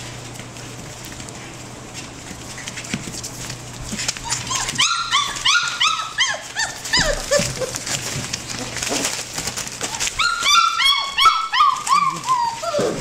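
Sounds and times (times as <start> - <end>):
puppies crying: 3.9 - 13.0.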